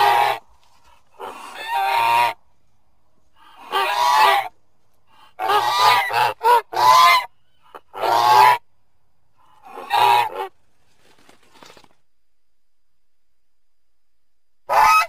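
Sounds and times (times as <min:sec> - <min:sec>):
goose honking: 0:00.0 - 0:02.4, 0:03.4 - 0:04.6, 0:05.2 - 0:08.6, 0:09.6 - 0:10.6, 0:14.7 - 0:15.0.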